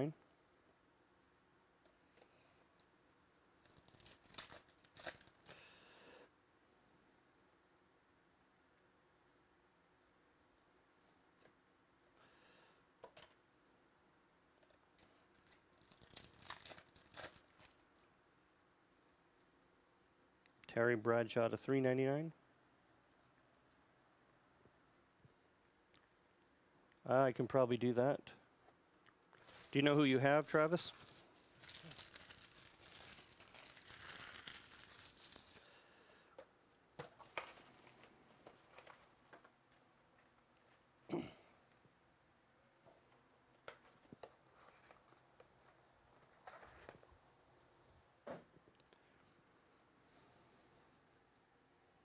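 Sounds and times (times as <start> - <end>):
foil wrapper tearing and crinkling: 3.6 - 5.6, 15.3 - 17.8, 29.4 - 35.7.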